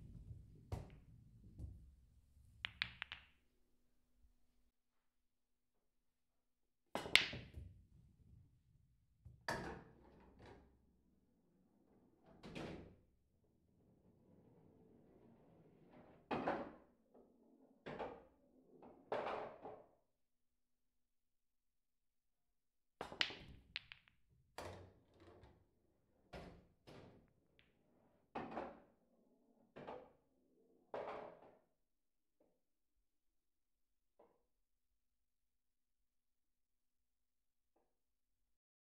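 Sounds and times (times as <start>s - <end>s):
billiard balls clacking: 0.1s - 1.8s, 2.6s - 3.4s, 7.0s - 7.5s, 23.0s - 25.3s
balls rolling on table: 2.6s - 3.3s, 23.0s - 25.5s.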